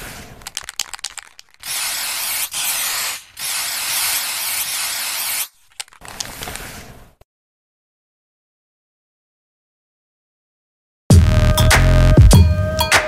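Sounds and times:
spray can rattling: 0.2 - 6.6
spray paint hissing: 0.5 - 5.6.

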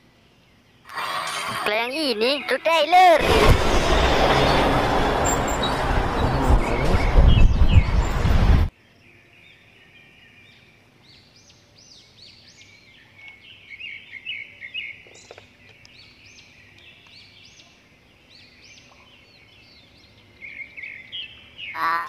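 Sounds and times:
faint background noise: 0.0 - 3.3
loud noise: 3.1 - 8.7
small birds chirping: 9.0 - 22.0.

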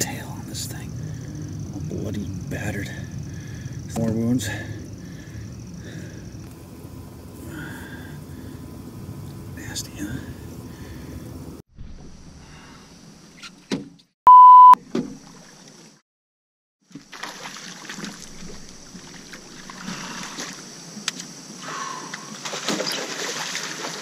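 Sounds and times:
small boat noise: 0.0 - 13.4, 16.8 - 24.0
censor beep: 14.3 - 14.8.

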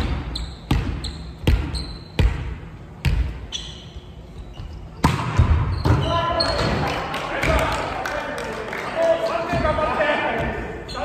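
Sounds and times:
volleyball bouncing on wooden floor: 0.0 - 3.4, 5.0 - 6.8
shoes squeaking on floor: 0.2 - 2.2, 3.4 - 5.1, 5.7 - 6.7, 10.8 - 11.0.

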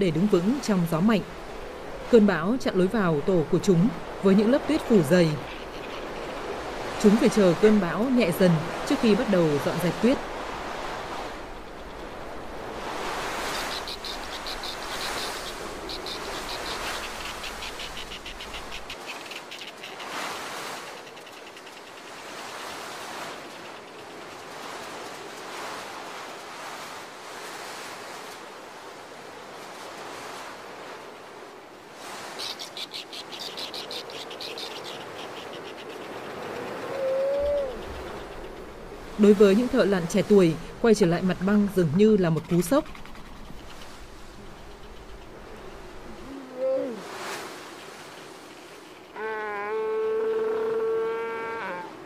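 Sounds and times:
wind blowing: 0.0 - 52.0
high chattering bird calls: 4.8 - 7.9, 13.4 - 20.2, 32.4 - 38.8.

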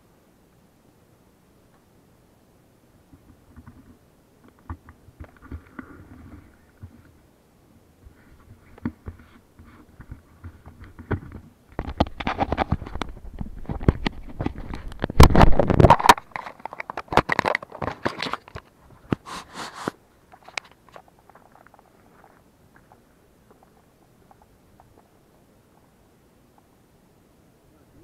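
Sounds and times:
camera handling noise: 8.3 - 22.4.

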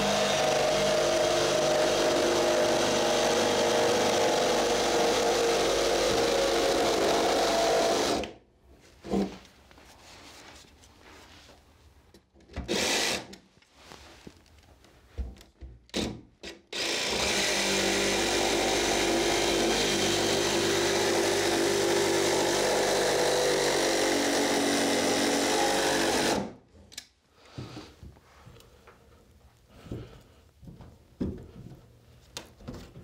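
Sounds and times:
jigsaw cutting wood: 0.0 - 8.4, 12.7 - 13.3, 16.7 - 26.6.

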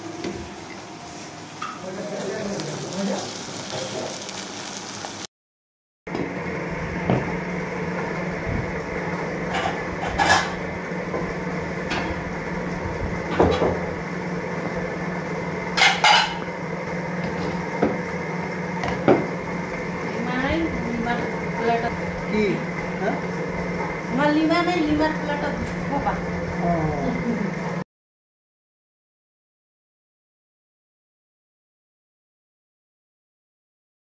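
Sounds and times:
steady low hum: 6.2 - 27.8
plates and bowls clinking: 9.5 - 10.7, 15.7 - 16.5.

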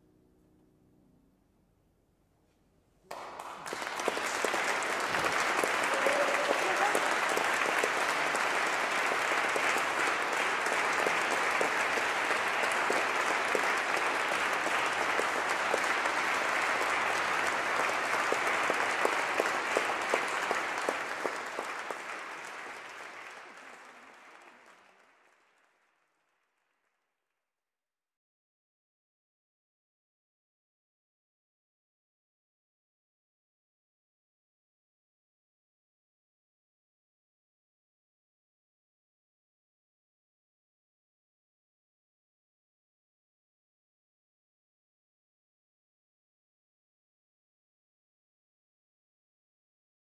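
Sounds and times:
audience applauding: 3.1 - 26.8.

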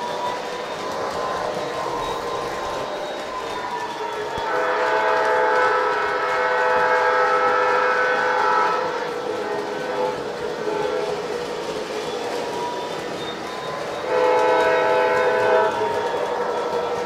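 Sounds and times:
model train running: 0.0 - 17.0
multi-note train horn: 4.3 - 11.3, 14.0 - 16.5.

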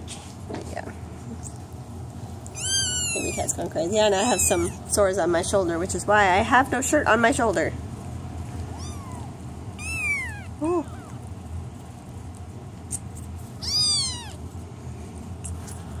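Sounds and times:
kittens meowing: 2.5 - 5.0, 8.6 - 11.3, 13.6 - 14.5.

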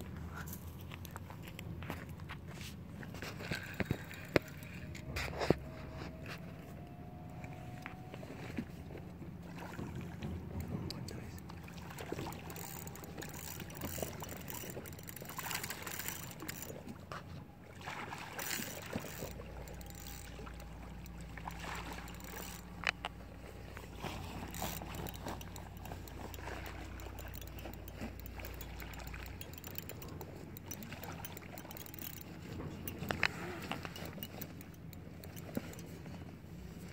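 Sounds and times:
fish splashing in water: 11.5 - 16.9, 17.6 - 32.5.

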